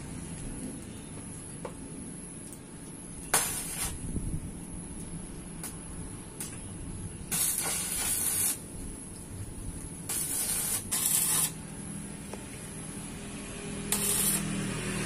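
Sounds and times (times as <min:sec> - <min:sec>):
arc welder hissing: 0:03.3 - 0:04.2, 0:07.3 - 0:09.0, 0:09.9 - 0:15.0.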